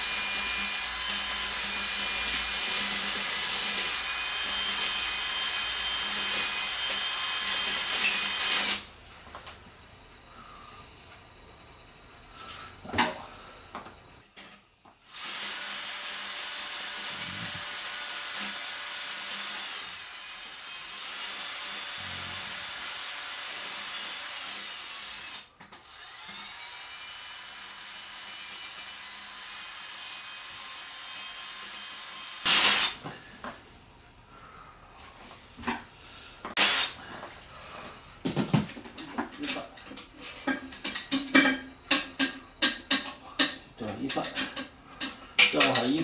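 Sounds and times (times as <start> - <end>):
electric drill running: 0.0 - 8.9, 15.1 - 33.0.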